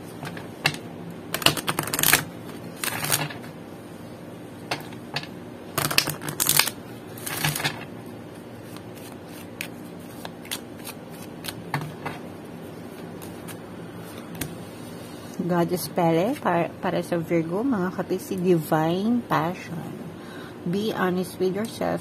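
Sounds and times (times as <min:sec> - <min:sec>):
cards riffling: 0:01.4 - 0:03.4, 0:08.6 - 0:11.7.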